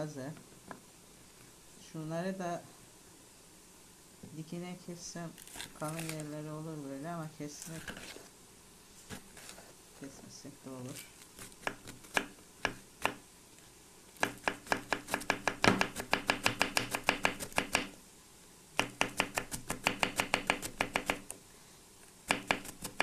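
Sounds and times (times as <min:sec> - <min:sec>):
knife chopping on wooden board: 0:11.4 - 0:13.2, 0:14.2 - 0:17.9, 0:18.8 - 0:21.3, 0:22.3 - 0:23.0.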